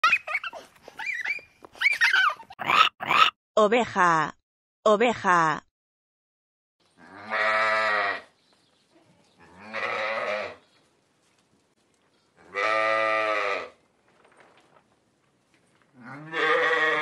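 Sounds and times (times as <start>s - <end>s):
sheep bleating: 7.0s - 8.3s, 9.4s - 10.6s, 12.5s - 13.8s, 16.0s - 17.0s.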